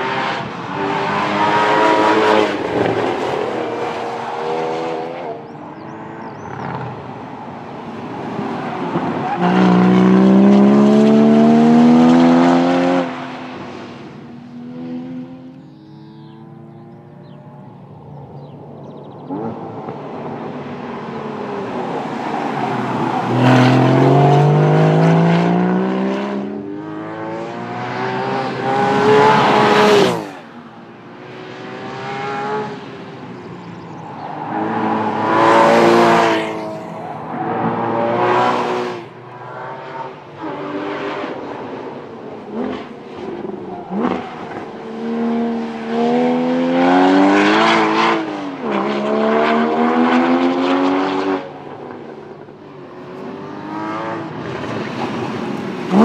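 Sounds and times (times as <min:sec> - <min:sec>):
car engine revving: 0:07.9 - 0:17.8, 0:18.4 - 0:52.4.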